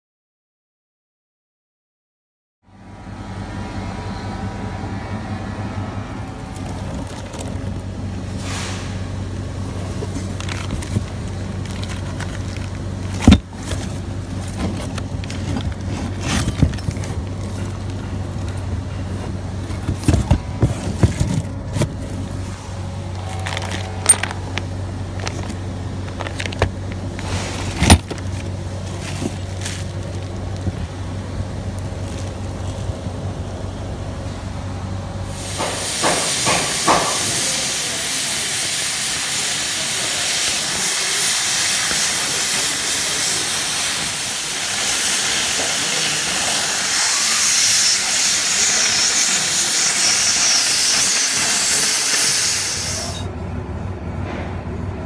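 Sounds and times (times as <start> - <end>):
diesel truck engine idling: 2.7 - 55.0.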